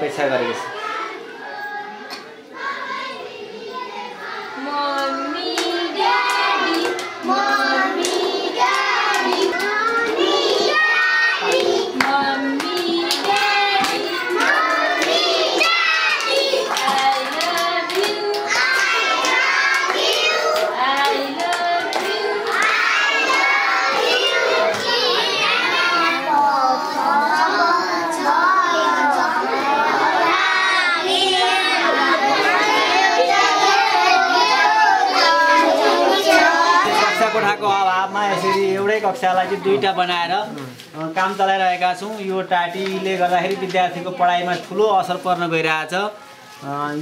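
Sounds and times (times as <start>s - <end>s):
children singing together: 0.4s - 38.9s
hand claps: 4.9s - 10.2s, 11.4s - 24.1s.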